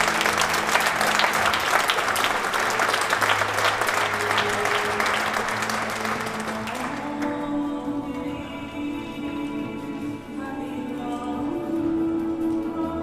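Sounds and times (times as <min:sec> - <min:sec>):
audience applauding: 0:00.0 - 0:07.2
soft background music: 0:00.0 - 0:13.0.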